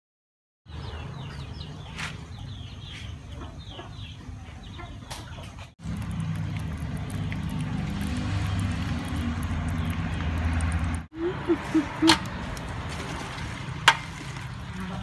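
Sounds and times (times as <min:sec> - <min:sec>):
birds chirping: 0:00.7 - 0:15.0.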